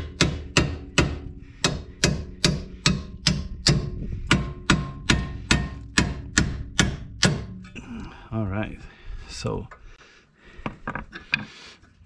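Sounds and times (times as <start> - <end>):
hammer striking steel bolt: 0.0 - 7.7.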